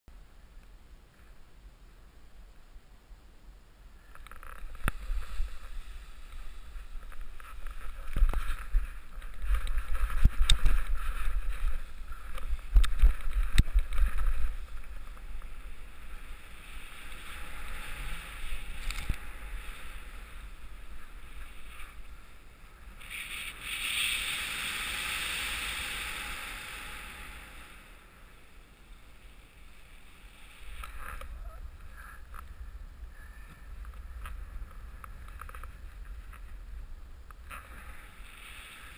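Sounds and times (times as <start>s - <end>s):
rush of air: 4.6s - 31.9s, 37.4s - 38.9s.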